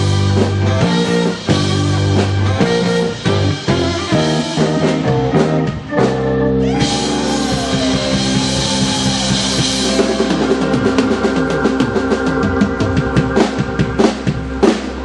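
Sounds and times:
live rock band playing: 0.0s - 15.0s
drum beat: 6.6s - 15.0s.

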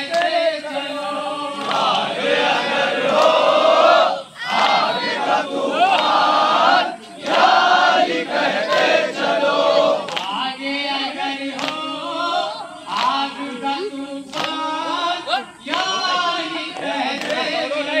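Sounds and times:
sharp hand slaps: 0.0s - 0.4s, 10.0s - 10.4s, 11.5s - 11.9s, 14.3s - 14.6s
crowd chanting: 0.0s - 18.0s.

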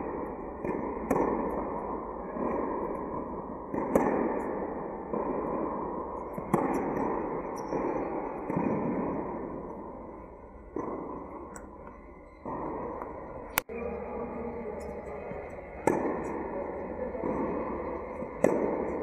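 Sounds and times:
tennis ball hit by racket: 0.6s - 1.6s, 2.4s - 9.3s, 15.8s - 19.0s
tennis ball bouncing on court: 0.6s - 1.8s, 2.4s - 9.4s, 14.7s - 19.0s.

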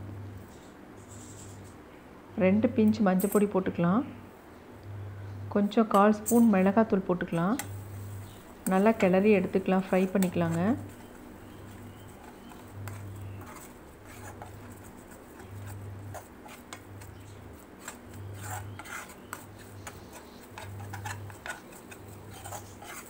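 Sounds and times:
eggs frying: 7.6s - 23.0s
spatula scraping a frying pan: 7.7s - 23.0s.

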